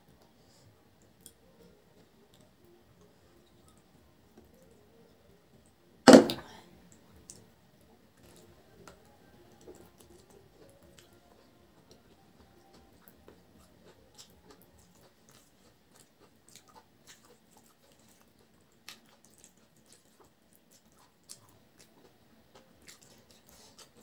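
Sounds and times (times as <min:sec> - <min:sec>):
chewing: 0:08.2 - 0:24.0
fingers mixing food on a plate: 0:08.2 - 0:24.0.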